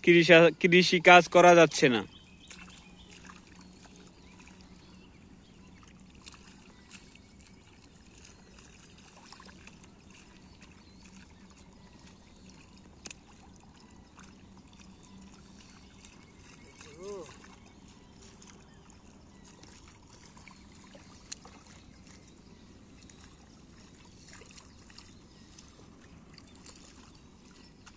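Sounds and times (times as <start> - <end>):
mud and water squelching: 0.0 - 27.9.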